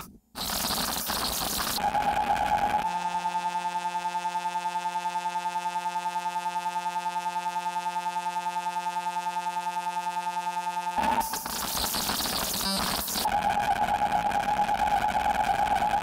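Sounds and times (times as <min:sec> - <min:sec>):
noisy chaotic synth texture: 0:00.0 - 0:02.8, 0:11.0 - 0:16.0
pulsing buzzy synth drone: 0:00.0 - 0:16.0.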